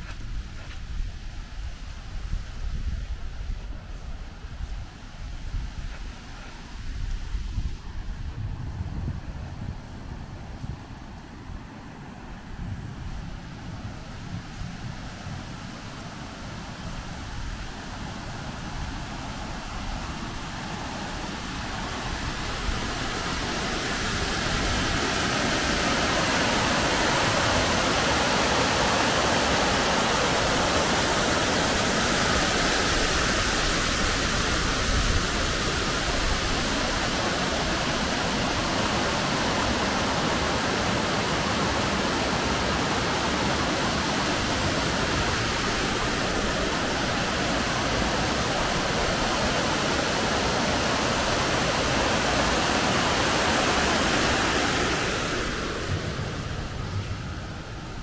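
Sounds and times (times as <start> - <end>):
water rushing over a weir: 13.4 - 58.0.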